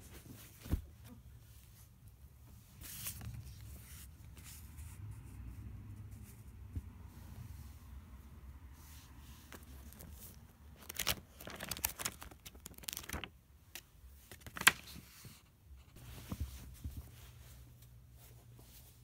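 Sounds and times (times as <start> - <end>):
paper pages rustling: 9.3 - 15.4.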